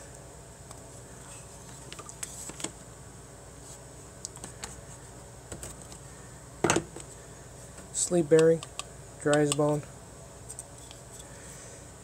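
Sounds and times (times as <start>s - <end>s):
low room hum: 0.0s - 12.0s
plastic fan clicks and taps: 8.3s - 9.8s.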